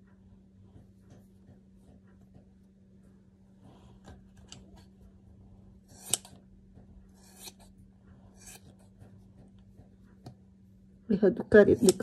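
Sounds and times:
scissors snipping fur: 5.9s - 6.4s, 7.2s - 7.7s, 8.4s - 8.9s, 11.6s - 12.0s.

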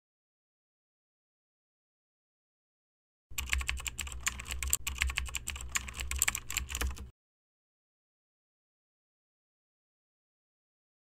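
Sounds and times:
fast typing on keyboard: 3.3s - 7.1s.

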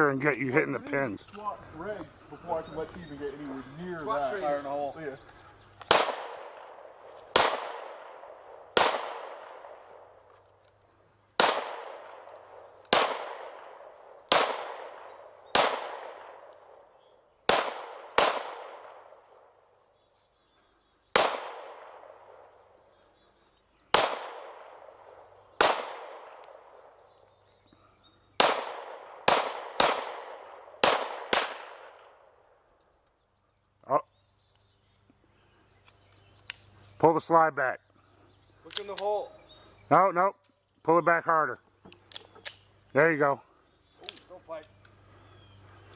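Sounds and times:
pistol shots with echo: 5.8s - 10.2s, 11.4s - 16.7s, 17.4s - 19.5s, 21.1s - 22.5s, 23.9s - 27.0s, 28.4s - 32.3s.

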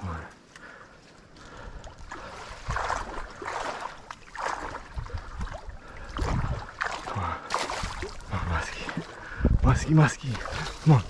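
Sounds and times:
fish thrashing in water: 1.9s - 9.2s.

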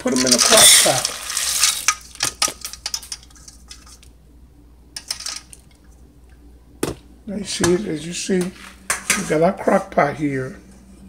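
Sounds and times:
dry beans rattling into pot: 0.0s - 4.1s, 5.0s - 5.7s.

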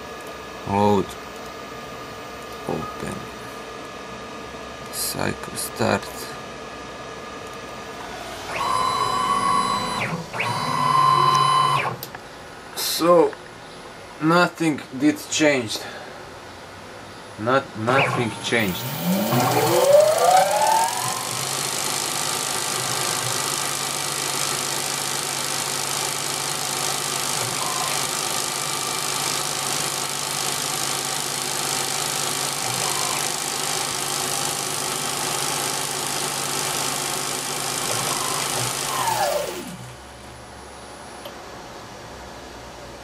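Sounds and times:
lathe spindle motor whine: 8.0s - 12.0s, 17.9s - 34.8s, 35.4s - 39.9s.

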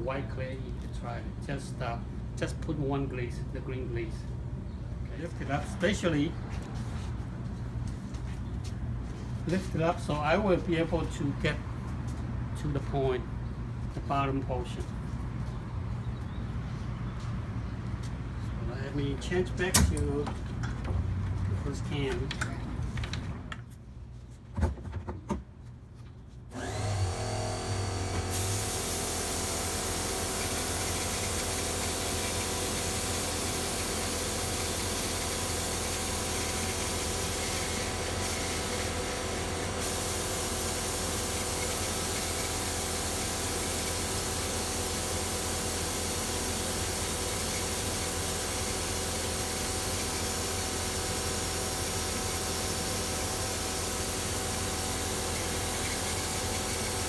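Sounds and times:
motor humming: 26.5s - 44.0s, 44.9s - 57.0s
spray gun hissing: 28.3s - 57.0s.

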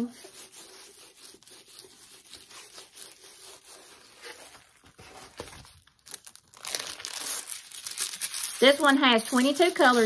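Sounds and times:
canvas rustling and crinkling: 4.2s - 10.0s.

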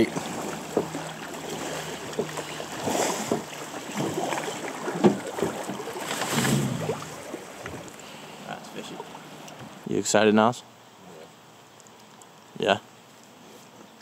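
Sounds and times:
oars splashing in water: 0.0s - 9.8s
water rippling around boat: 0.0s - 14.0s.

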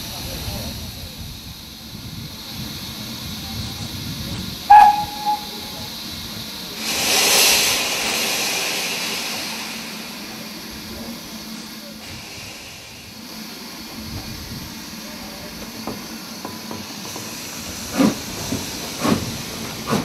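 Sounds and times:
steam hissing: 0.0s - 20.0s
steam locomotive whistle toots: 4.7s - 6.0s.

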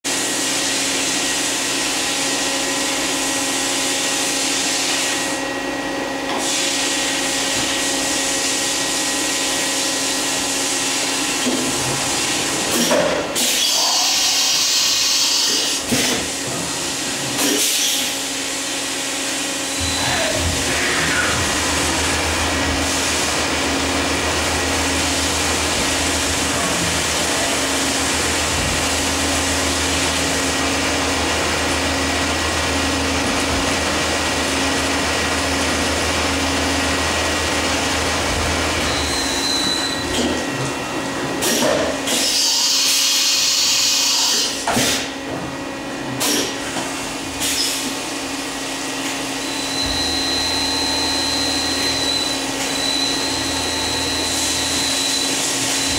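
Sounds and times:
coolant spraying and cutting hiss: 6.3s - 23.5s, 41.4s - 45.2s, 46.2s - 48.0s
machine hum: 18.2s - 41.4s
high whistle: 38.9s - 40.1s, 49.5s - 55.9s.

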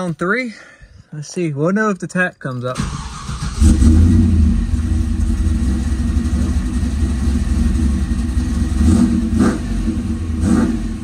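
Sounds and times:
car engine idling: 2.8s - 11.0s.

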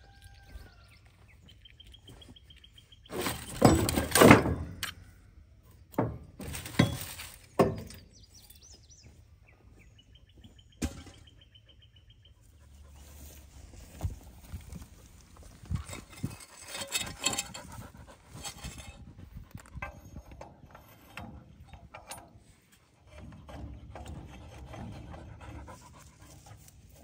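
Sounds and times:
birds chirping: 0.0s - 3.7s, 7.4s - 13.8s
metal parts clanking: 3.1s - 5.1s, 6.0s - 8.5s, 15.6s - 25.1s.

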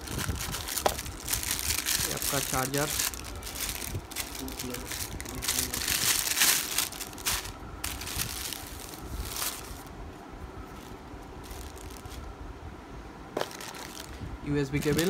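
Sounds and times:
plastic wrapping rustling: 0.0s - 9.9s, 10.7s - 12.3s, 13.4s - 15.0s
low steady rumble: 0.0s - 15.0s
items picked up and set down: 13.4s - 14.0s.

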